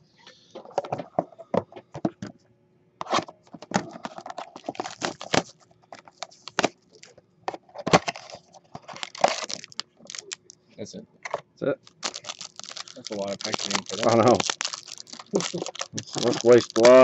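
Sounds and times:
packaging rustling: 0:03.7 - 0:07.1, 0:07.8 - 0:10.6, 0:11.8 - 0:17.0.

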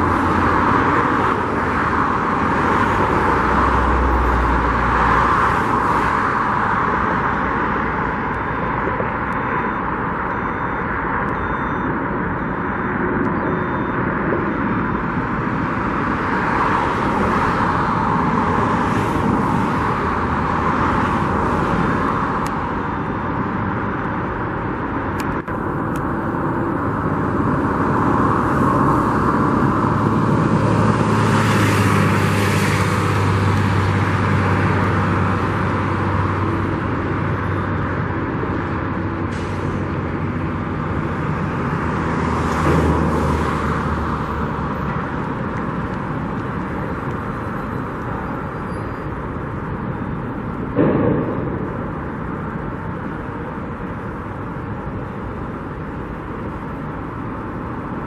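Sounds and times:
road traffic noise: 0:00.0 - 0:58.0
vehicle passing: 0:25.6 - 0:37.3.

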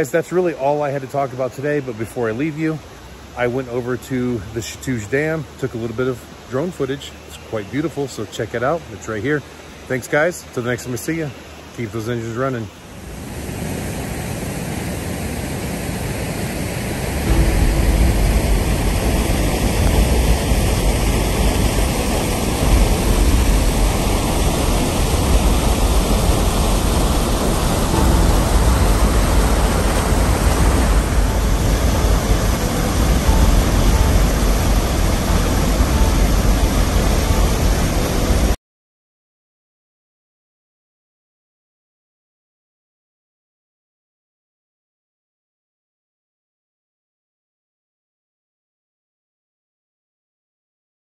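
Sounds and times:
heavy low rumble: 0:16.6 - 0:38.6
water pouring over a spillway: 0:17.1 - 0:38.6.

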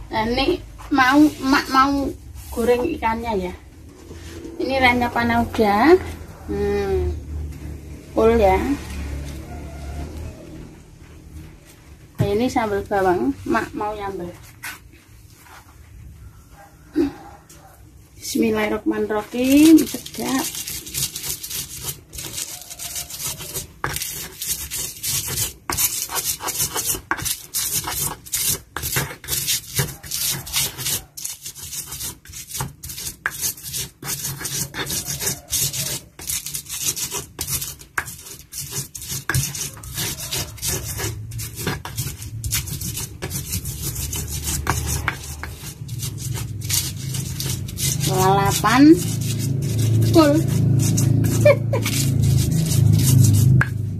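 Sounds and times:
stone pestle grinding in mortar: 0:19.0 - 0:53.9.

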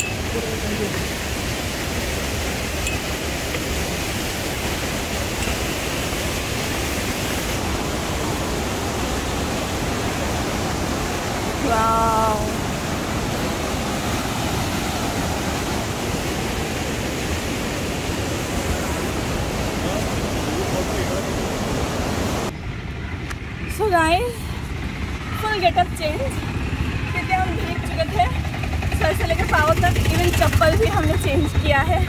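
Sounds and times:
waterfall rushing: 0:00.0 - 0:22.5.

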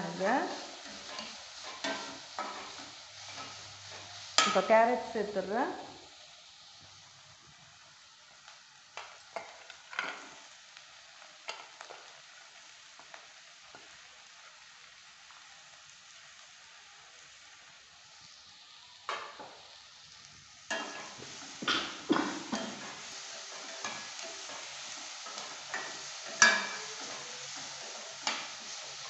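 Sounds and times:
onions sizzling in pan: 0:00.0 - 0:29.0
metal spoon scraping pan: 0:22.2 - 0:28.8.

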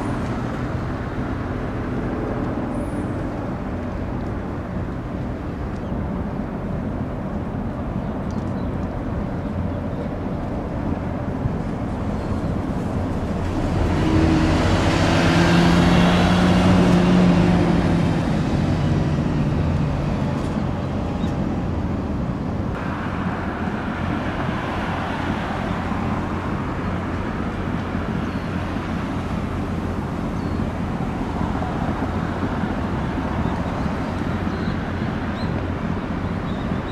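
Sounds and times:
low rumble of traffic: 0:00.0 - 0:36.9
motor vehicle passing: 0:12.0 - 0:21.2.

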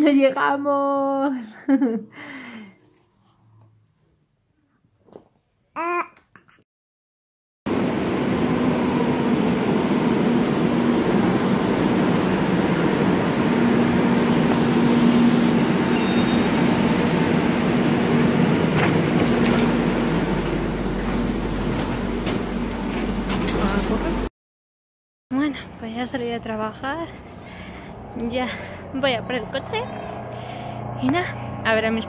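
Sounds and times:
train rumble: 0:07.7 - 0:24.3
wheel and brake squeals: 0:09.8 - 0:10.9, 0:12.3 - 0:16.6.

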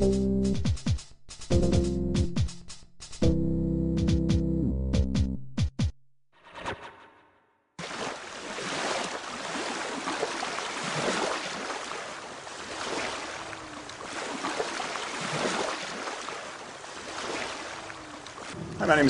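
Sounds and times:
ocean waves washing on shore: 0:07.8 - 0:19.0.

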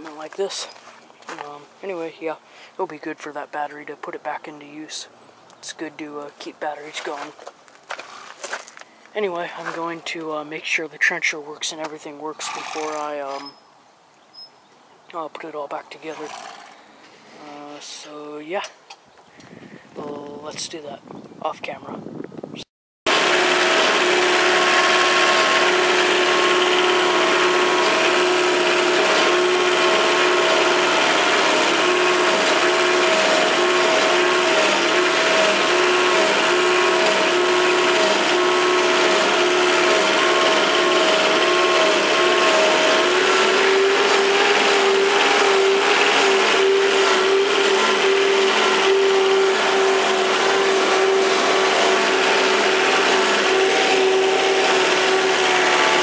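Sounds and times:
rattling mechanical clatter: 0:16.2 - 0:16.9, 0:23.1 - 0:56.0
diesel engine whine: 0:23.1 - 0:56.0.

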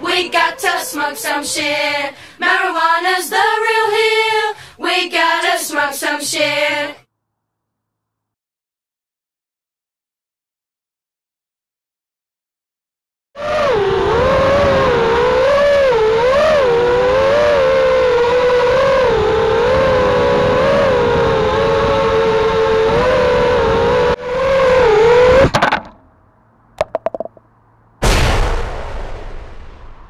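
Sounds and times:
drone motors whining: 0:00.0 - 0:02.2, 0:13.4 - 0:26.0
drone crashing clatter: 0:28.0 - 0:30.0
explosion sound effect: 0:28.0 - 0:30.0.

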